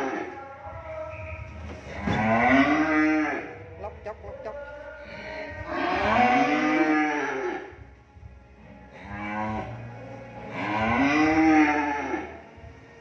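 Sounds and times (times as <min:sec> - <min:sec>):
cattle mooing: 0:01.9 - 0:03.6, 0:05.7 - 0:07.7, 0:08.9 - 0:09.8, 0:10.4 - 0:12.4.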